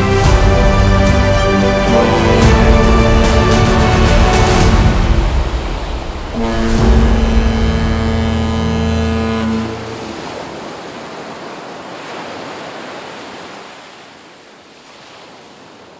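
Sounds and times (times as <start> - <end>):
held horn-like chord: 0.0 - 5.4, 6.3 - 10.4
rushing surf-like noise: 1.7 - 14.2.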